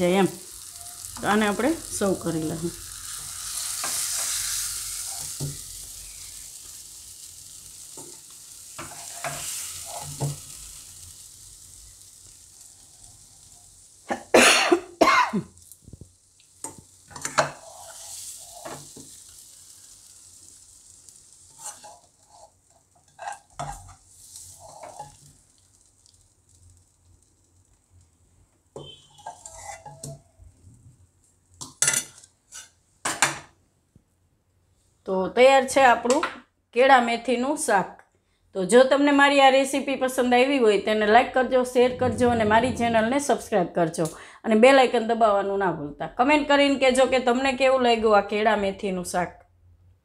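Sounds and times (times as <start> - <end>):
faint sizzle from pan: 0.0 - 33.6, 37.0 - 49.2
spoon scraping a pan: 2.9 - 6.4, 7.9 - 10.6, 16.6 - 19.4, 21.4 - 25.4, 28.8 - 30.3, 31.6 - 33.3.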